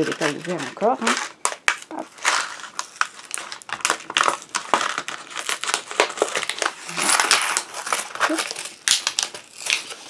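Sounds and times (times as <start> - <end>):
plastic crackling and crinkling: 0.0 - 10.0.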